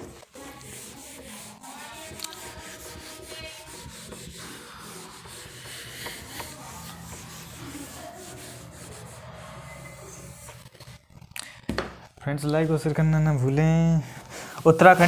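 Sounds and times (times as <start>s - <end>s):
pen scratching while writing: 0.0s - 11.3s.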